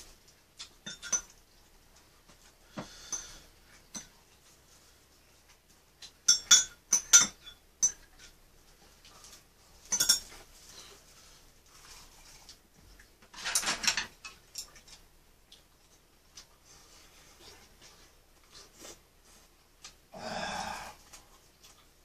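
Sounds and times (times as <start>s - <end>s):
metal spoon clinking on bowl: 0.8s - 1.3s, 6.2s - 8.1s, 9.9s - 10.3s.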